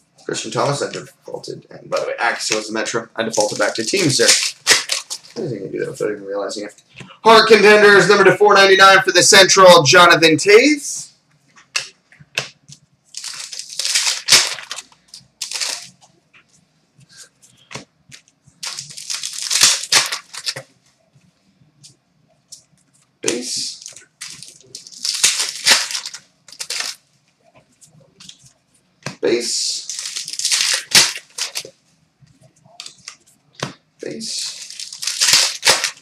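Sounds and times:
plastic wrappers tearing and crinkling: 3.3 - 5.4, 13.1 - 16.0, 18.6 - 20.6, 23.7 - 27.0, 29.8 - 31.7, 34.1 - 36.0.

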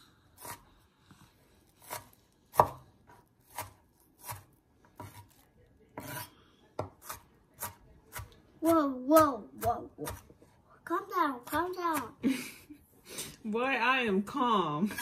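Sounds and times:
knife chopping on wooden board: 1.8 - 5.4, 6.0 - 10.4.

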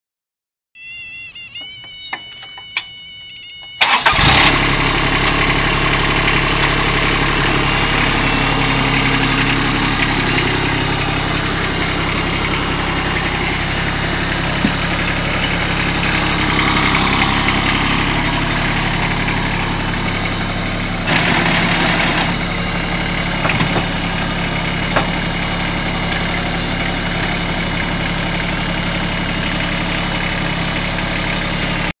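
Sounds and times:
electronic tone: 0.8 - 4.6, 7.6 - 9.5
diesel engine cranking and running: 1.2 - 31.9.

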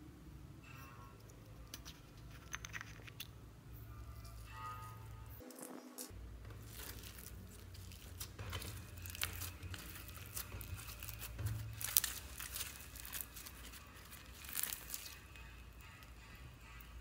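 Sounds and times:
slime beads crackling: 5.5 - 16.8.

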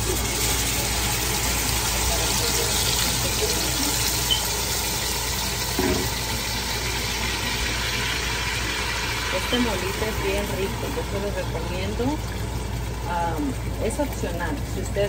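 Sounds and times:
sauce sizzling in hot oil: 0.0 - 15.0.

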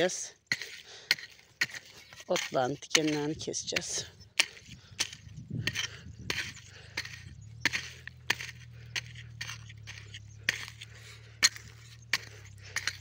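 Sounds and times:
hoe chopping into dry soil: 0.0 - 13.0
low steady hum: 3.3 - 13.0.

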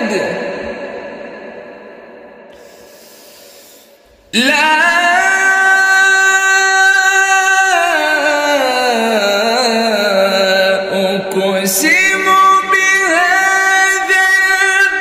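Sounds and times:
man chanting melodic recitation: 0.0 - 0.8, 4.3 - 15.0.

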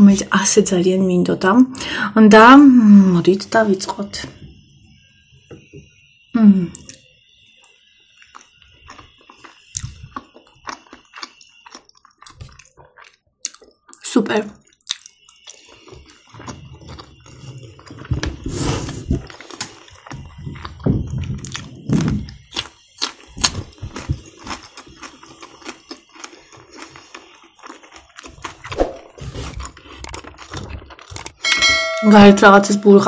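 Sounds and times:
close chewing: 8.2 - 14.0, 14.6 - 31.4.

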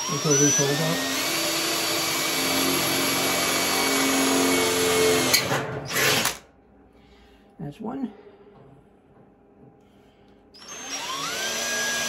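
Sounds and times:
cordless drill boring through metal: 0.0 - 6.4, 10.6 - 12.0.

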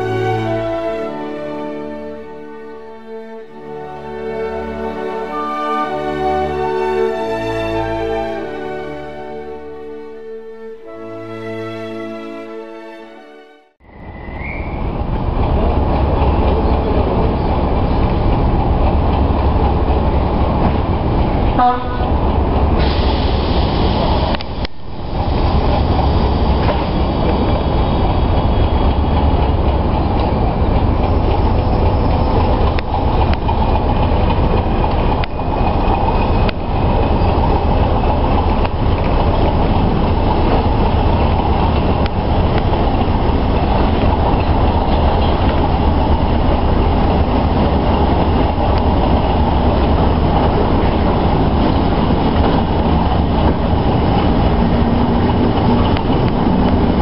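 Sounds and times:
train rumbling on track: 0.0 - 13.0, 13.8 - 57.0
sharp track clicks: 26.6 - 57.0.

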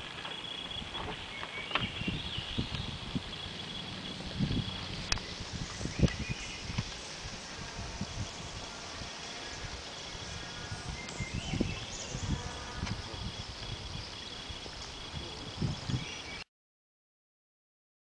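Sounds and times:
high insect drone: 0.0 - 16.4.

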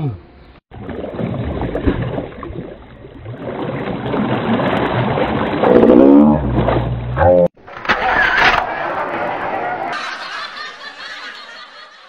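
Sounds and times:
water splashing and sloshing: 0.7 - 8.7.

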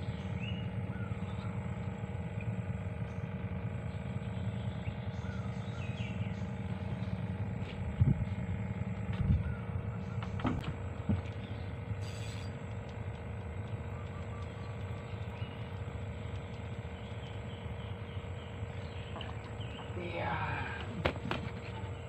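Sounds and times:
low motor hum: 0.0 - 22.0
faint bird chirps: 13.8 - 15.8.

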